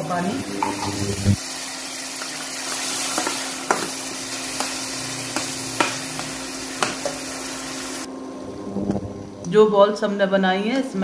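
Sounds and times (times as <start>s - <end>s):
spices sizzling in a pan: 0.0s - 8.1s.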